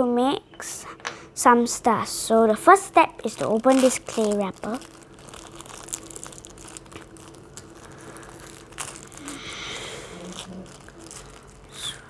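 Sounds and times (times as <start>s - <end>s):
plastic wrapper crinkling: 3.2s - 12.0s.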